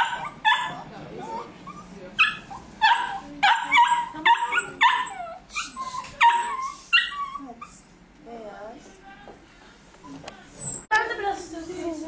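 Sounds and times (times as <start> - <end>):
puppies squealing: 0.0 - 7.8.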